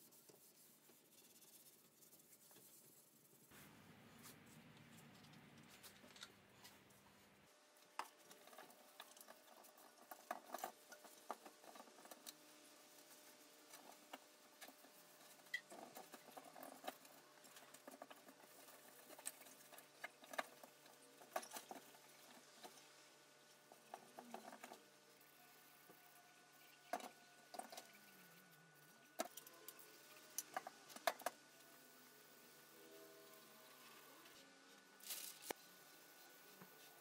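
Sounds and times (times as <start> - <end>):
cloth wiping metal: 0.0 - 4.5.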